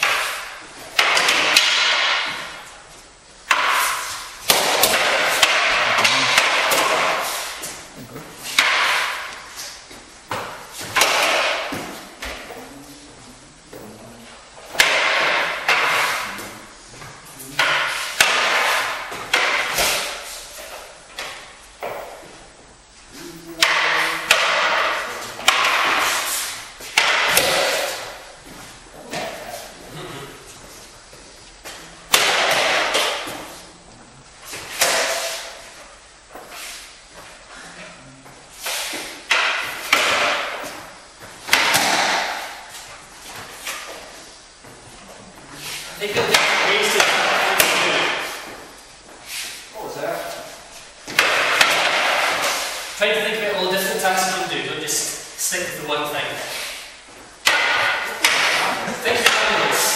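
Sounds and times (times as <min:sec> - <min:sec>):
wooden sticks clacking: 0:00.0 - 0:02.6, 0:03.5 - 0:07.8, 0:08.4 - 0:09.5, 0:14.7 - 0:16.4, 0:23.6 - 0:28.3, 0:38.6 - 0:40.8, 0:46.0 - 0:48.6, 0:57.4 - 0:59.9
wooden swords clacking: 0:00.0 - 0:02.8, 0:03.4 - 0:12.7, 0:14.6 - 0:22.3, 0:23.5 - 0:30.7, 0:31.6 - 0:33.6, 0:34.5 - 0:37.4, 0:38.6 - 0:44.3, 0:45.0 - 0:55.3, 0:56.4 - 0:59.9.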